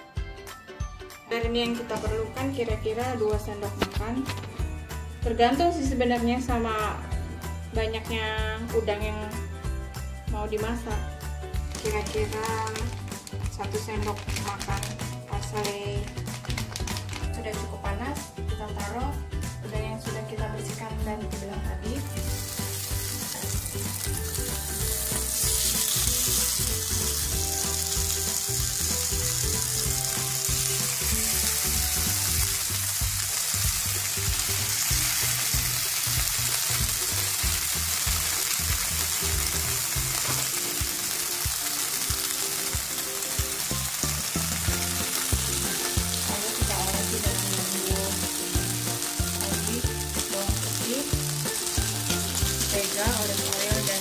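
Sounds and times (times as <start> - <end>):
prawns sizzling in a pan: 11.7 - 17.3, 22.0 - 54.0.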